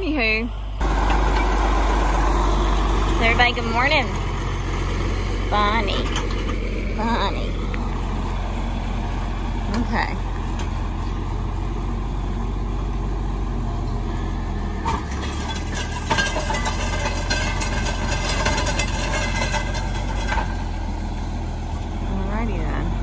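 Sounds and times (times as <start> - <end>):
tractor diesel engine running: 0.0 - 23.0
metal frame rattling and clanking: 14.7 - 20.8.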